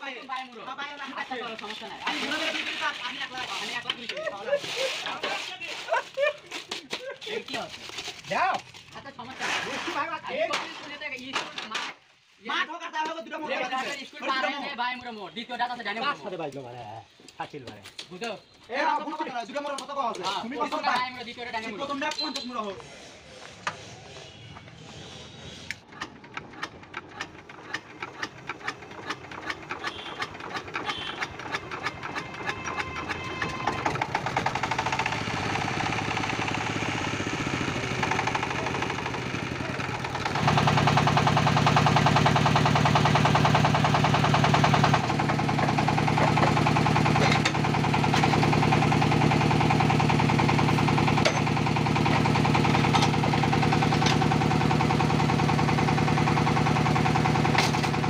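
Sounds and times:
diesel engine hand-cranked running: 25.6 - 58.0.

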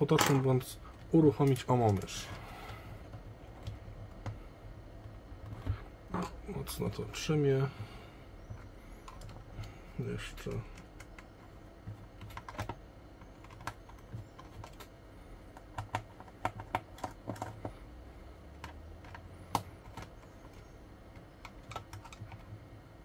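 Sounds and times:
tool clicking and knocking on plastic case: 10.7 - 14.9, 15.5 - 17.8, 18.6 - 22.7.

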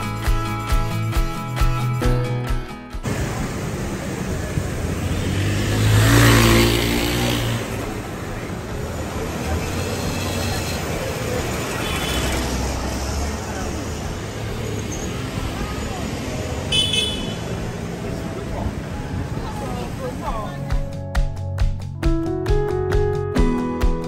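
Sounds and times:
street traffic: 0.0 - 21.9
vehicle passing close by: 3.1 - 20.3.

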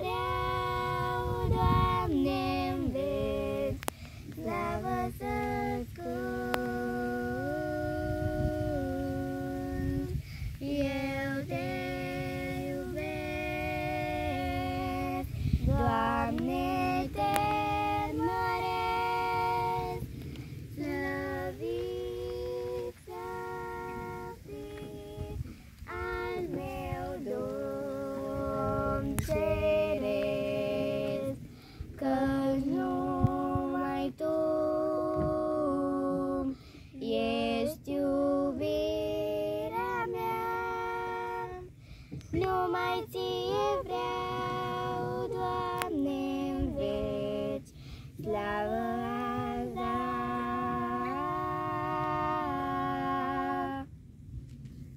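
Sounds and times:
low rumble: 0.0 - 36.4
young girls singing: 0.0 - 54.0.

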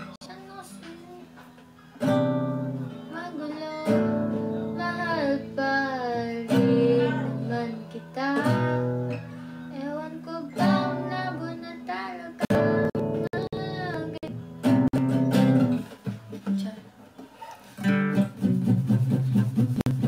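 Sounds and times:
acoustic guitar strumming chords: 0.0 - 20.0
person singing: 2.8 - 14.4.

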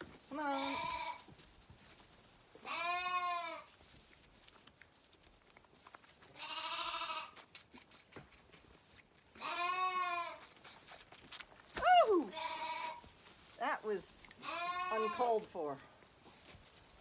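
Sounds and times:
lambs bleating: 0.3 - 1.3, 2.6 - 3.7, 6.3 - 7.5, 9.4 - 10.4, 12.3 - 13.0, 14.4 - 15.6.

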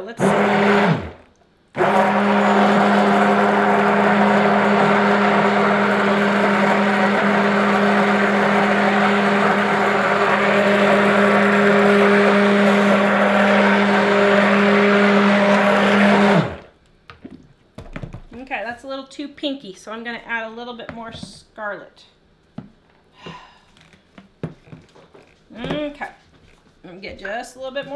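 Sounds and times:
stick blender running: 0.0 - 16.7.

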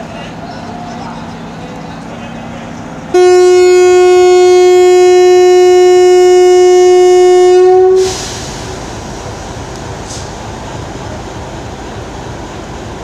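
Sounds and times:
locomotive horn blast: 3.1 - 8.4.

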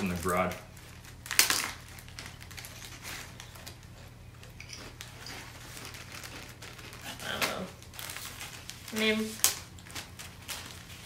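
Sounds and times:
potato chips crunching: 0.0 - 10.9
plastic snack bag crackling: 0.0 - 11.0.

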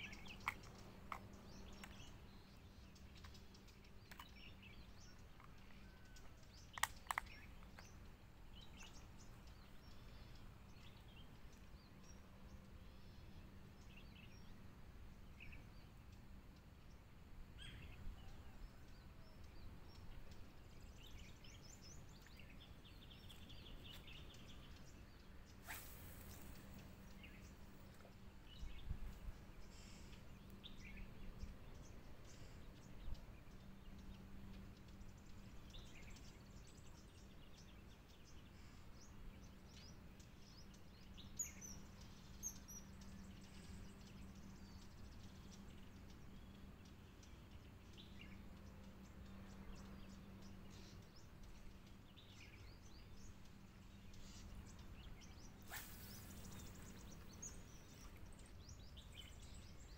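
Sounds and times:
bird chirps: 0.0 - 14.6, 17.6 - 59.9
low steady hum: 0.0 - 59.9
fishing rod cast swish: 25.6 - 26.7, 55.6 - 57.0
fishing line running off reel: 25.6 - 27.0, 55.6 - 57.0.

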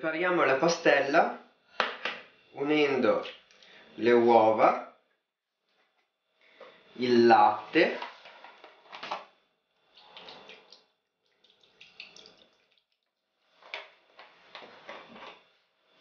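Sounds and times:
milk pouring into plastic bowl: 9.9 - 13.2.

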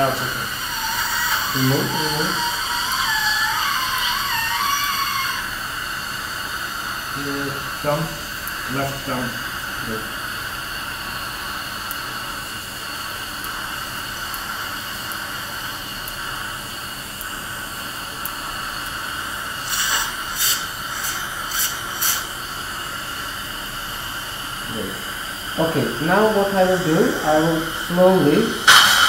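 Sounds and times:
dental suction hissing: 0.0 - 29.0
short harsh bursts: 19.4 - 23.9, 24.6 - 29.0.

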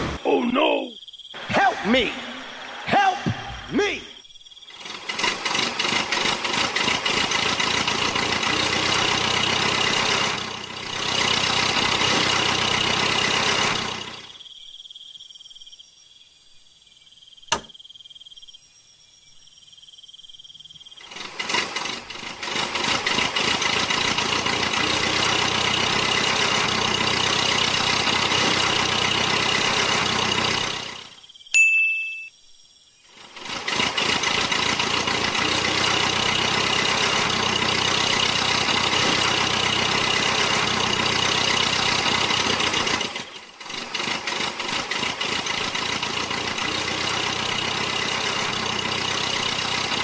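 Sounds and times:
sharp click: 17.5 - 17.8.

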